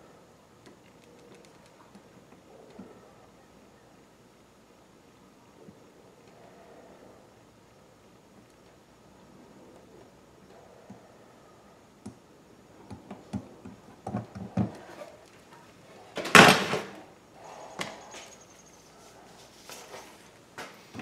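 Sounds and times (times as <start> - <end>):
faint clicks: 0.6 - 2.9.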